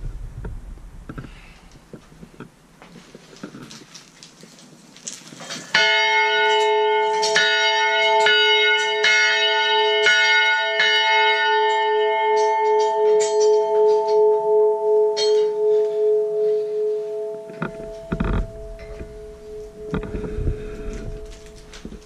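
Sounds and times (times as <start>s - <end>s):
church bell ringing: 5.7s - 22.0s
bell hum with pulsing waver: 6.0s - 22.0s
faint rustle: 15.7s - 22.0s.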